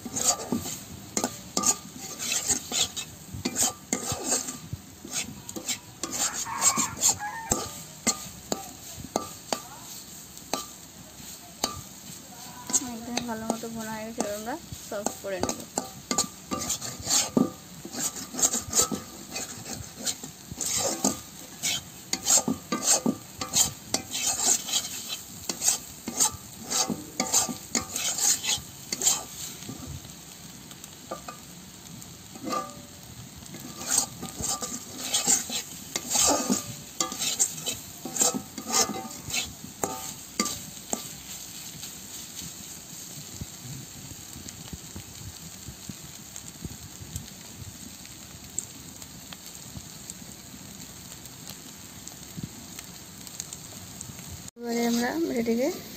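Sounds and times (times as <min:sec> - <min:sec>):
metal spatula scraping a pan: 0:00.0 - 0:30.1, 0:30.8 - 0:31.5, 0:32.2 - 0:43.2, 0:54.7 - 0:55.9
hot oil sizzling: 0:00.0 - 0:55.9.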